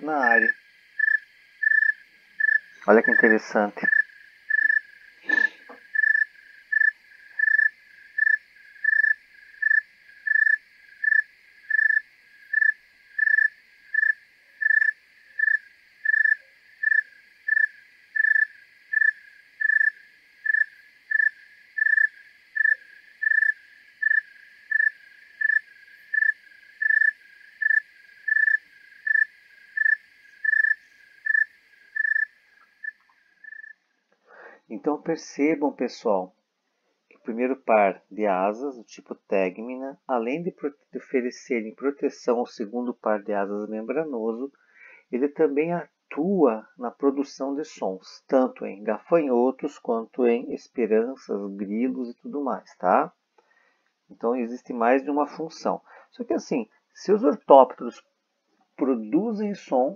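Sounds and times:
tree cricket chirping: 0.0s - 34.8s.

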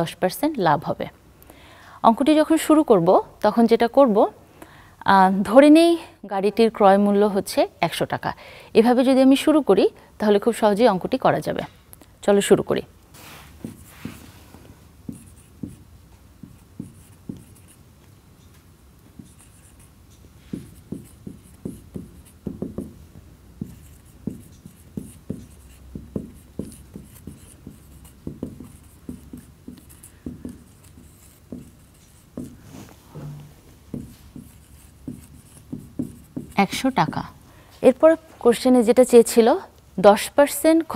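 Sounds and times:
marker pen writing on whiteboard: 13.4s - 37.4s.

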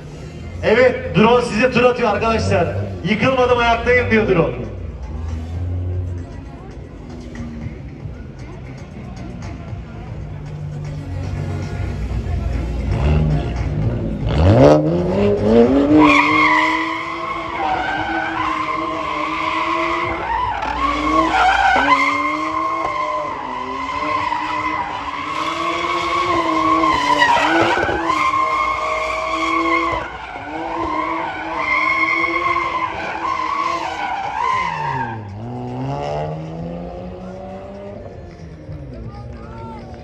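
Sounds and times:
tyres skidding and squealing: 0.0s - 40.0s
car engine at high revs: 10.5s - 39.1s.

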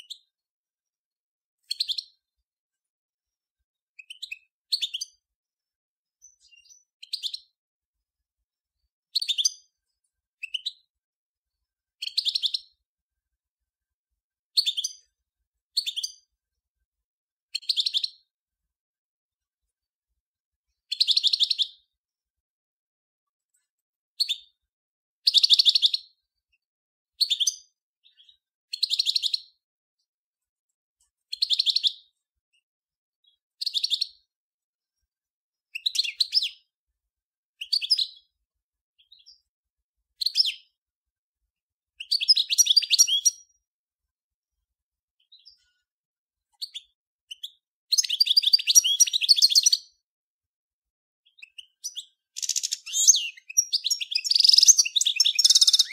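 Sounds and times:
goldfinch twittering song: 1.6s - 2.2s, 3.8s - 5.2s, 6.2s - 7.6s, 9.1s - 9.8s, 10.4s - 10.9s, 12.0s - 12.8s, 14.5s - 15.1s, 15.7s - 16.3s, 17.5s - 18.3s, 20.8s - 21.9s, 25.2s - 26.2s, 27.2s - 29.6s, 31.3s - 32.1s, 33.2s - 34.3s, 35.7s - 36.7s, 37.6s - 38.3s, 42.0s - 43.6s, 46.6s - 50.0s, 51.3s - 55.9s.

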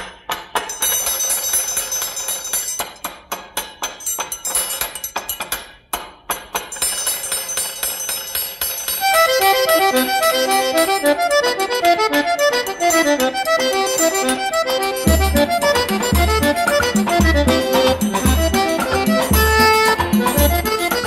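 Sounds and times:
triangle ringing: 6.7s - 9.2s, 12.6s - 16.2s
accordion melody: 9.0s - 21.0s
tambourine beats: 14.0s - 21.0s
quick drum beats: 15.0s - 21.0s.

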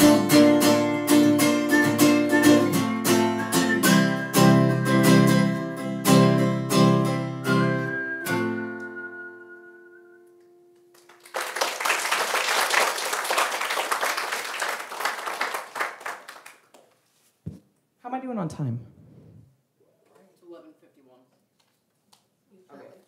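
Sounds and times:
acoustic guitar strumming: 0.0s - 10.8s
audience applause: 10.9s - 16.8s.

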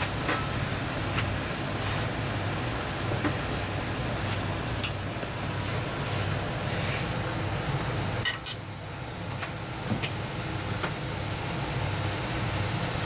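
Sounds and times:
gas burner hiss: 0.0s - 8.2s
broth boiling: 0.0s - 13.0s.

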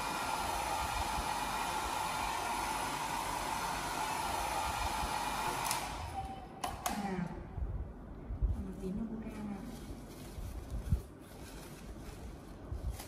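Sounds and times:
hair dryer running: 0.0s - 7.2s.

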